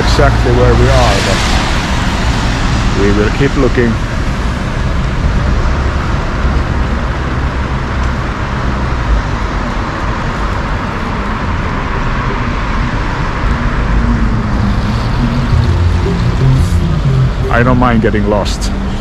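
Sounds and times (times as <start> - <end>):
tyres hissing on wet road: 0.0 - 5.0
car engine rumble: 0.0 - 19.0.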